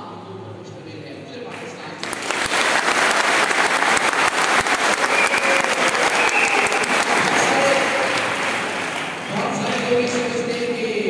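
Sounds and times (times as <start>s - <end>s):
audience applauding: 2.0s - 10.6s.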